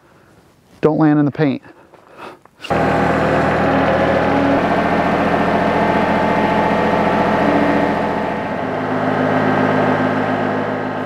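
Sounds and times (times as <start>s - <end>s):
tractor engine running: 2.7s - 11.0s.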